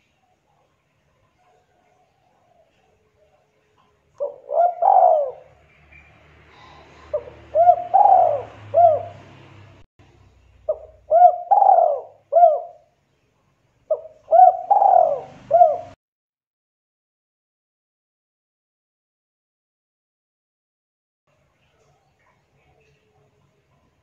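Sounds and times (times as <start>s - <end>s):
dove cooing: 4.2s - 9.4s, 10.7s - 12.9s, 13.9s - 16.0s.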